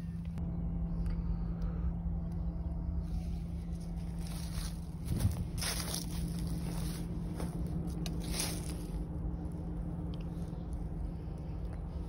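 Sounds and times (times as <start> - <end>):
low steady hum: 0.0 - 12.0
footsteps on dry leaves: 3.0 - 12.0.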